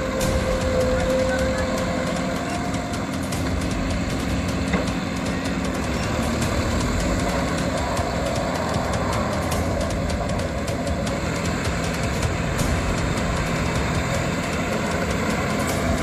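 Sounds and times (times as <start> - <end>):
tiller churning mud and water: 0.0 - 16.0
tractor diesel engine drone: 0.0 - 16.0.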